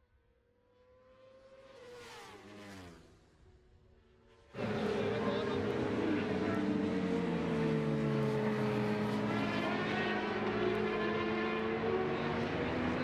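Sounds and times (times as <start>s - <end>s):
racing motorcycle engines revving: 4.4s - 13.0s.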